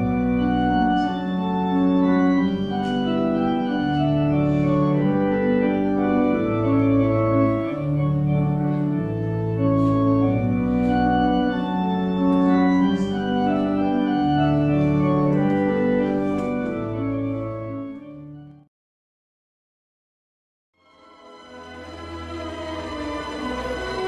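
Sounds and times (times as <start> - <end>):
organ playing chords: 0.0 - 18.7, 20.8 - 24.0.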